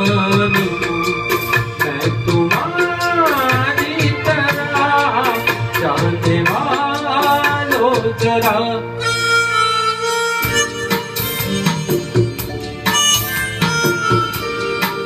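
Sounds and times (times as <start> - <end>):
drum and tabla beat: 0.0 - 8.8, 10.4 - 15.0
man singing into microphone: 0.0 - 9.2
keyboard backing music: 0.0 - 15.0
harmonica-like melody: 6.8 - 15.0.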